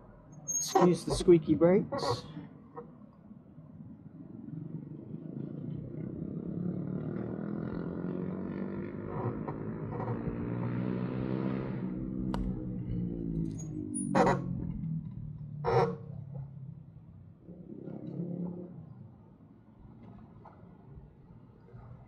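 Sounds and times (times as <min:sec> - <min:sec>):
small engine passing: 0:06.0 - 0:16.6.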